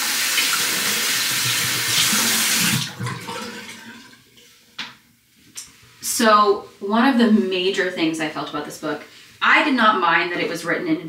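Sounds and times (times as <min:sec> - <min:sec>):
tap water running into sink: 0:00.0 - 0:04.2.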